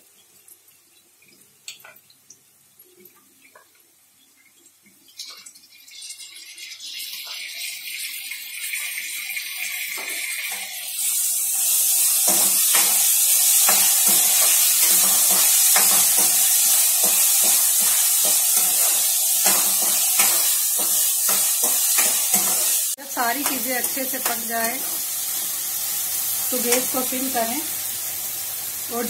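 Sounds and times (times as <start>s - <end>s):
vegetables sizzling in hot oil: 0.0s - 29.0s
steel spoon scraping a pan: 10.0s - 25.5s.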